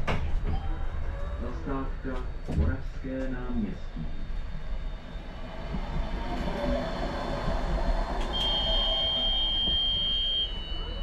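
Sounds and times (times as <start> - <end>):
tram rumbling: 0.0 - 11.0
sliding doors moving: 5.2 - 9.9
high electronic warning beep: 8.3 - 11.0.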